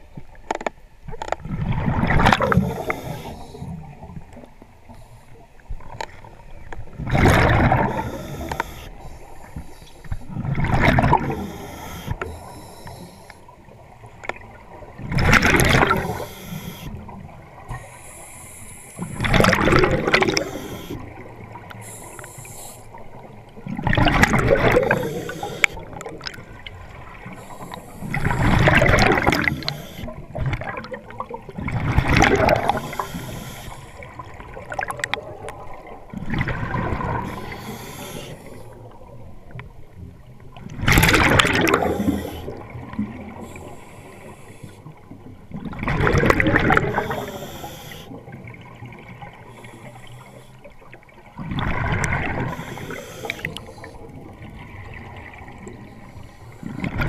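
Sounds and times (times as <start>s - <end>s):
exhaled bubbles underwater: 1.4s - 4.8s, 5.6s - 17.9s, 19.0s - 57.0s
soft regulator hiss: 2.4s - 5.8s, 7.8s - 10.3s, 11.1s - 14.4s, 15.8s - 19.4s, 20.2s - 23.6s, 24.7s - 30.3s, 32.5s - 34.3s, 37.0s - 39.0s, 41.7s - 45.2s, 46.7s - 48.4s, 49.3s - 51.2s, 52.4s - 54.4s, 55.5s - 56.8s.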